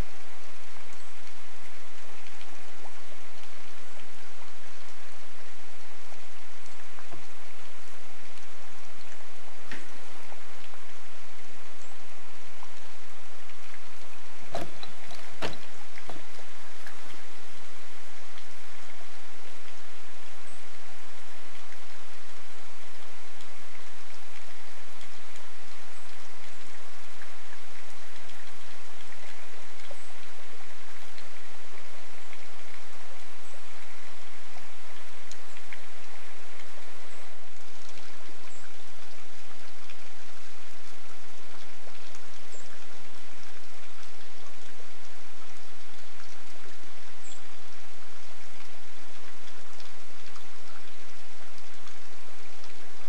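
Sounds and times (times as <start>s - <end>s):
steady rainfall: 0.0s - 53.0s
drops ticking on a surface: 13.5s - 17.0s.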